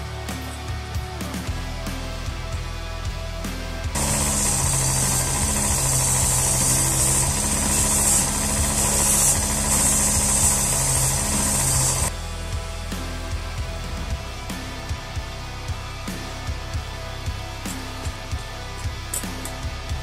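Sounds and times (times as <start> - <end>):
electric motor humming: 3.8 - 12.2
sanding drum grinding leather: 3.9 - 12.1.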